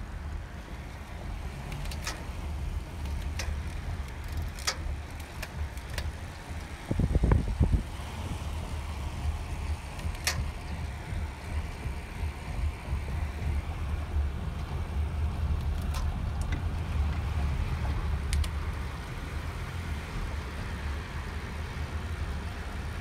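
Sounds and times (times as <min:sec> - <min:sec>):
car engine and road noise: 0:00.0 - 0:23.0
wind buffeting microphone: 0:00.0 - 0:23.0
faint sharp clicks: 0:17.9 - 0:18.6.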